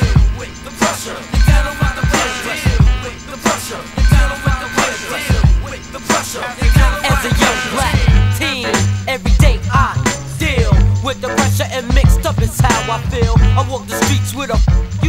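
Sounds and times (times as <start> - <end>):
heavy kick drum: 0.0 - 0.6, 1.4 - 3.2, 5.3 - 5.8, 6.6 - 13.7, 14.6 - 15.0
hip hop beat: 0.0 - 15.0
sampled loop: 0.0 - 15.0.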